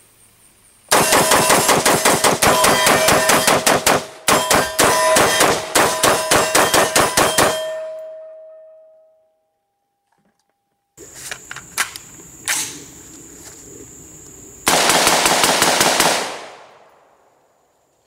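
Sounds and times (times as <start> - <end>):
rifle rapid semi-automatic fire: 0.9 - 7.6, 14.7 - 16.9
ringing tone: 4.3 - 11.0.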